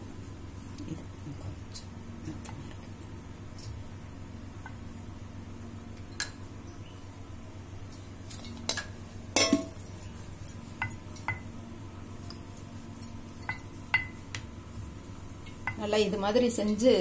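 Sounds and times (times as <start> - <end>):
steel plate clinking: 9.4 - 9.8.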